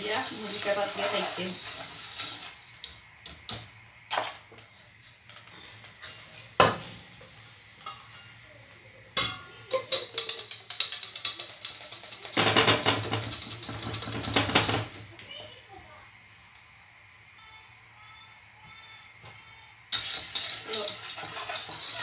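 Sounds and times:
whisk scraping metal pot: 0.0 - 2.7, 19.9 - 22.0
rice rattling in mesh sieve: 0.0 - 2.9, 10.1 - 15.1, 19.9 - 22.0
rice grains crackling: 0.0 - 3.6, 19.9 - 22.0.

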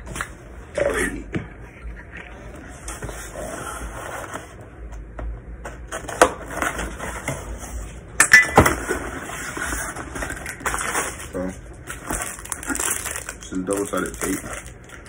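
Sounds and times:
packaging rustling: 9.4 - 15.0.

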